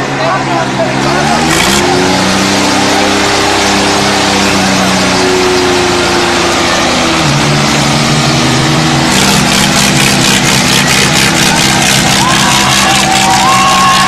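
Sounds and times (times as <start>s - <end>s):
diesel tractor engines labouring: 0.0s - 14.0s.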